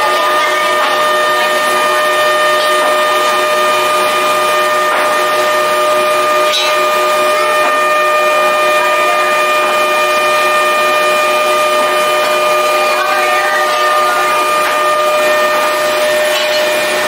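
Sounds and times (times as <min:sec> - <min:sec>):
workshop machine whining: 0:00.0 - 0:17.0.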